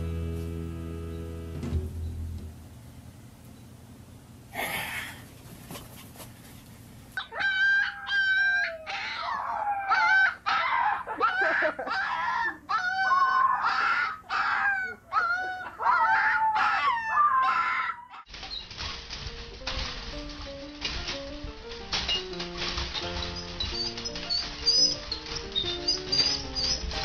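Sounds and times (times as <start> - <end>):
husky howling and whining: 7.2 - 18.3, 22.0 - 27.0.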